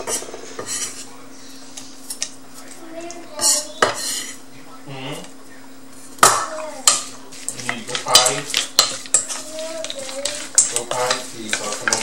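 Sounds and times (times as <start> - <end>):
clinks and scrapes on metal bowl: 6.9 - 12.0.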